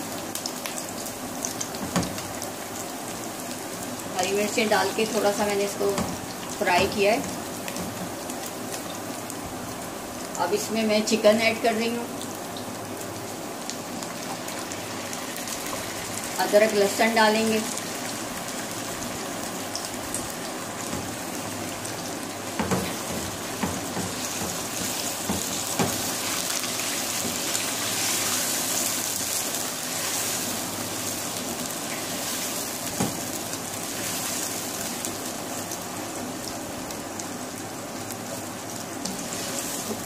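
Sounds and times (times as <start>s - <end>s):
chicken sizzling in hot oil: 0.0s - 40.0s
spatula knocking against pan: 22.6s - 26.0s.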